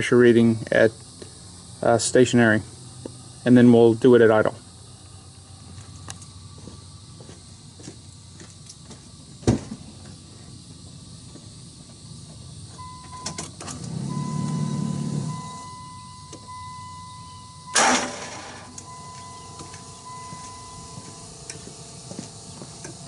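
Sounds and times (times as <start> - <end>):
loud thump: 9.4 - 9.8
electric fuel pump whining: 12.7 - 23.0.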